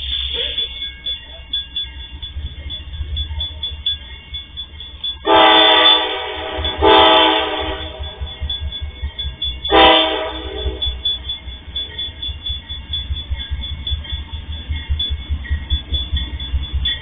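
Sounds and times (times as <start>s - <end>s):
locomotive air horn blasts: 5.2s - 8.2s, 9.7s - 11.0s.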